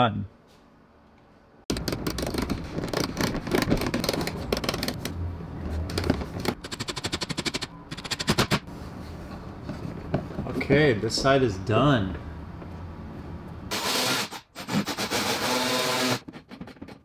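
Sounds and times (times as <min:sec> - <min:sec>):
fast run of clicks: 0:01.7 - 0:05.2, 0:05.9 - 0:08.6.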